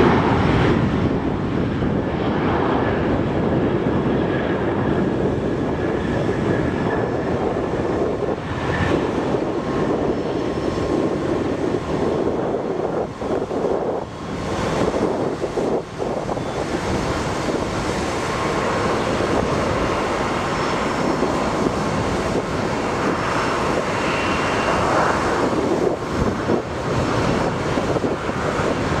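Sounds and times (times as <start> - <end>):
jet engine rushing noise: 0.0 - 29.0.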